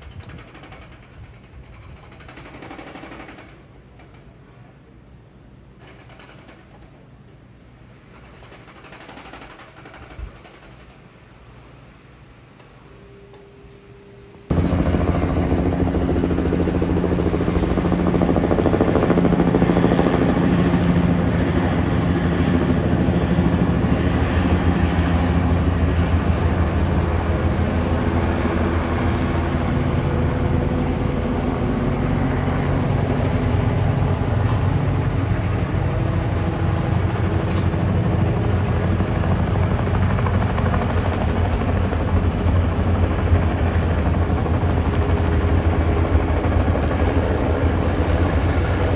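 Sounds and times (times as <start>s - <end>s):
helicopter engine noise: 0.0s - 4.3s, 8.0s - 11.0s, 14.5s - 48.9s
helicopter rotor beating: 14.5s - 48.9s.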